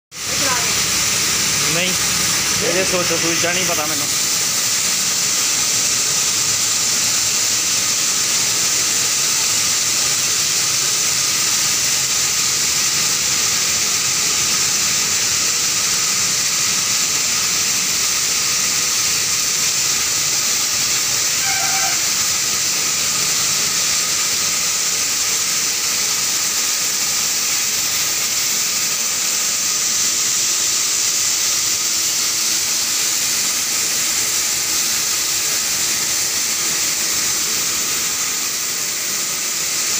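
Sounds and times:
mill machinery hissing: 0:00.1 - 0:39.9
short high tone: 0:21.4 - 0:22.2.

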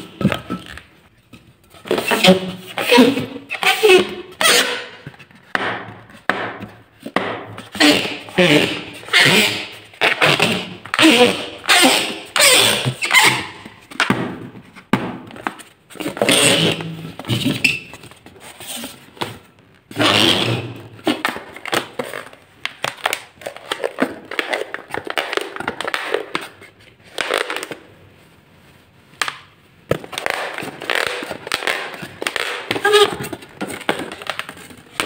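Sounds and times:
rubber balloon squeaking: 0:01.8 - 0:05.3, 0:07.5 - 0:13.8, 0:16.0 - 0:18.1, 0:19.9 - 0:21.3, 0:30.2 - 0:35.0.

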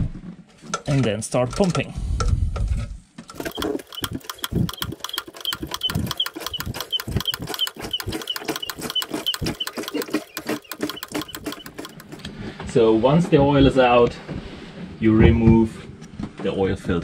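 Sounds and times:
hand pump clicks and knocks: 0:03.3 - 0:12.3
pump squeak: 0:03.3 - 0:12.3.

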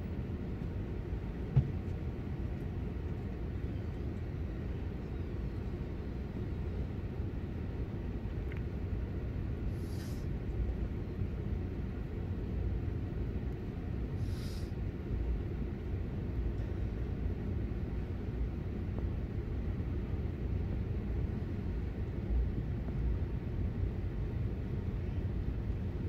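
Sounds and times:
short hisses: 0:09.7 - 0:10.3, 0:14.2 - 0:14.7.

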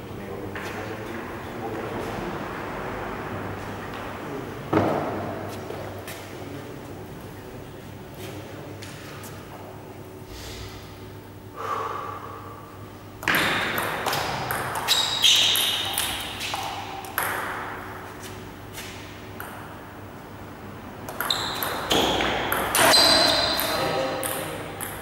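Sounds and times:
table tennis ball hits: 0:13.2 - 0:18.0, 0:18.8 - 0:19.9, 0:21.1 - 0:25.0.

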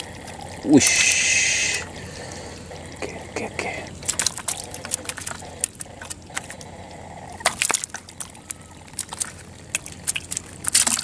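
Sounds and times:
hands splashing in muddy water: 0:04.0 - 0:06.6, 0:07.4 - 0:11.0
wet clicks and slaps: 0:04.0 - 0:06.6, 0:07.4 - 0:11.0.

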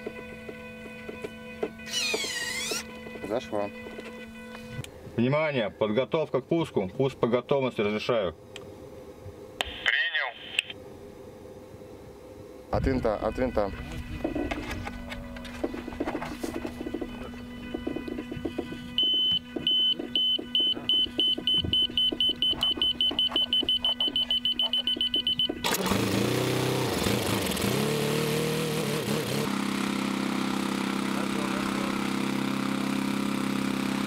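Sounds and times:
propeller spinning: 0:13.7 - 0:34.0
short high beeps: 0:19.0 - 0:25.7
small petrol engine revving: 0:25.6 - 0:34.0.

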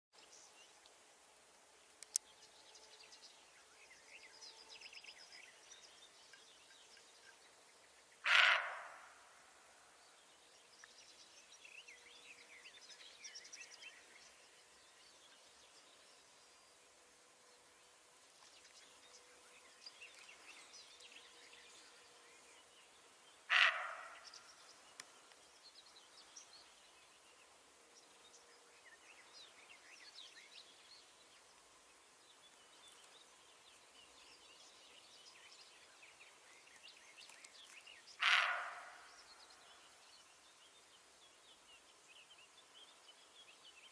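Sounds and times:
deer alarm bark: 0:08.2 - 0:09.0, 0:23.5 - 0:24.2, 0:38.2 - 0:39.0
small birds chirping: 0:18.4 - 0:43.9
faint bird chirps: 0:32.5 - 0:40.7.

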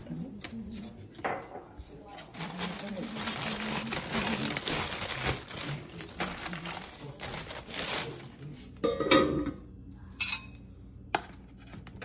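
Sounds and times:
rustling crinkling handling noise: 0:02.0 - 0:08.8.

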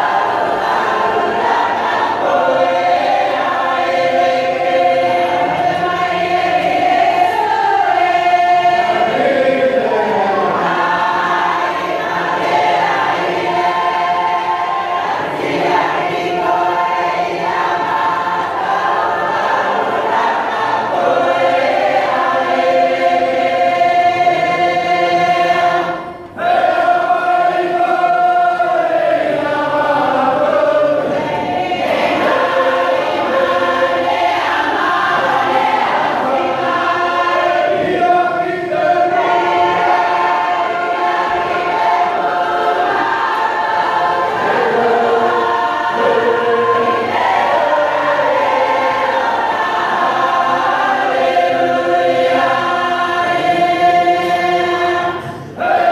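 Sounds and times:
congregation singing a hymn: 0:00.0 - 0:55.9.

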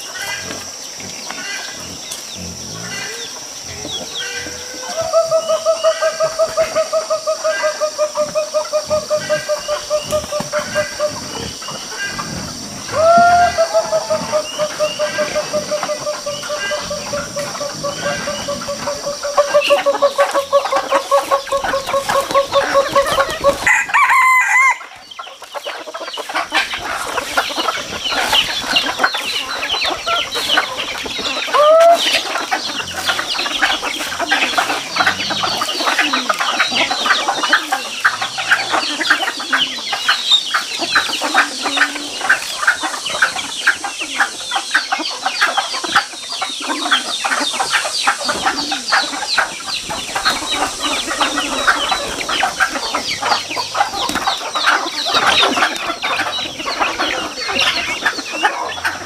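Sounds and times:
hens pecking and clucking: 0:00.0 - 0:59.0
rooster crowing: 0:11.9 - 0:24.9, 0:31.5 - 0:32.2.

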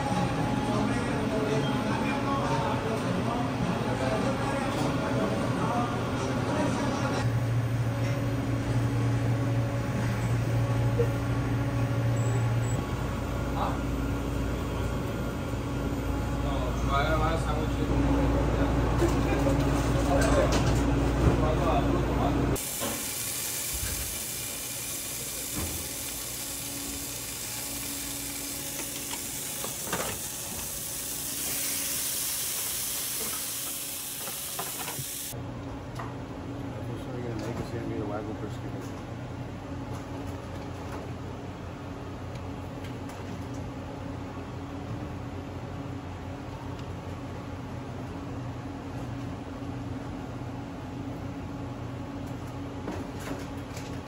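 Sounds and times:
refrigeration equipment humming: 0:00.0 - 0:37.3
meat sizzling in an oven: 0:22.6 - 0:35.4.

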